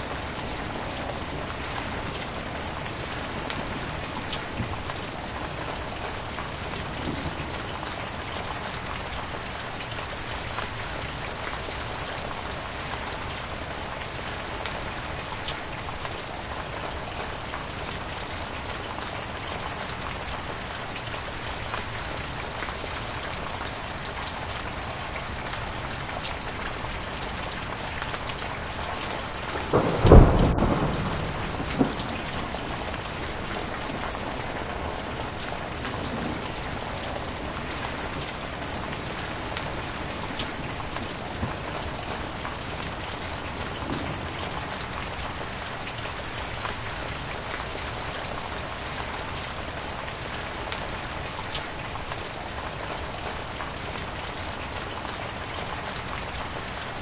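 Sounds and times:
heavy rain: 0:00.0 - 0:57.0
thunder clap: 0:29.3 - 0:38.2.

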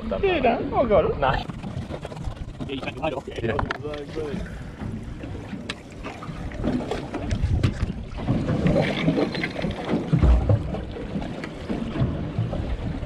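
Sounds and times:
water moving around boat: 0:00.0 - 0:13.0
wind buffeting microphone: 0:00.0 - 0:13.0
low thump: 0:09.8 - 0:11.2.

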